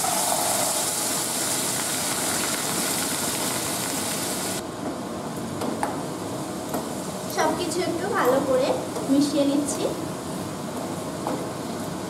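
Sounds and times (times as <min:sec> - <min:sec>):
potatoes sizzling in frying pan: 0:00.0 - 0:04.6.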